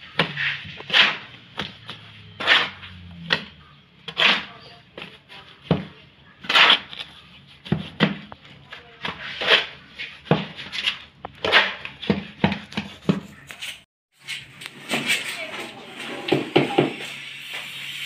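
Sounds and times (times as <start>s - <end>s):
shovel scraping wet mortar: 0.0s - 14.4s.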